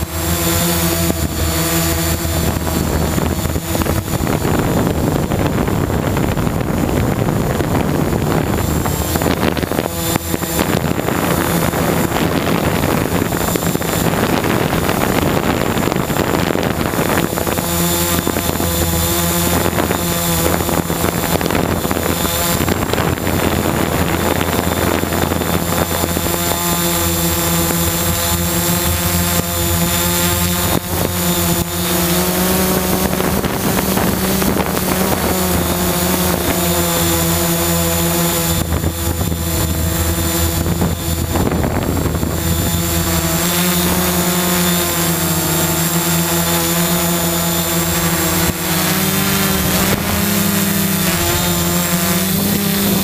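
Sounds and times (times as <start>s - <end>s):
drone propellers humming: 0.0s - 53.0s
thin high whine: 0.0s - 53.0s.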